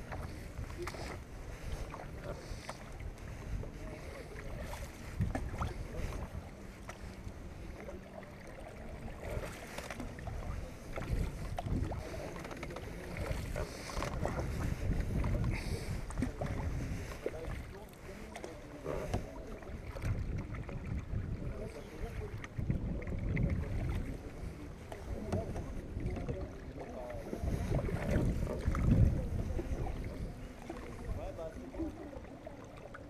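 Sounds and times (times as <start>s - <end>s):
wind noise on microphone: 0.0s - 6.7s, 9.1s - 17.7s, 19.8s - 26.6s, 27.2s - 31.4s
water splashing: 0.0s - 33.0s
paddle knocking against hull: 4.4s - 6.3s, 9.1s - 21.0s, 24.9s - 30.9s.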